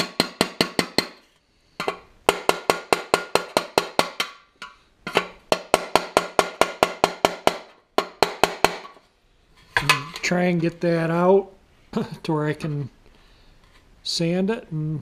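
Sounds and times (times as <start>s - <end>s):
hammer tapping metal punch: 0.0s - 1.2s, 1.8s - 9.0s.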